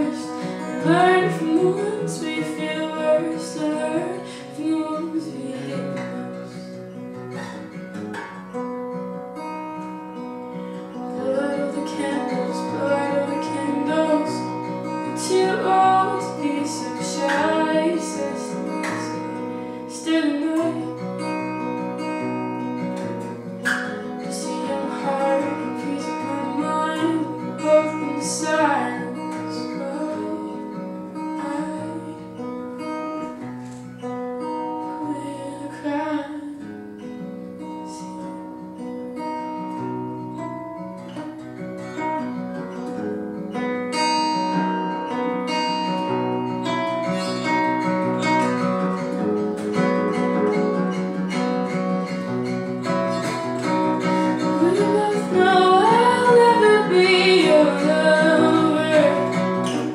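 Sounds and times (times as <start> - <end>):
woman singing: 0.0 - 7.1, 10.8 - 21.6, 23.6 - 33.4, 34.4 - 36.9, 37.6 - 38.6, 53.0 - 59.9
fingerpicked acoustic guitar: 0.0 - 59.9.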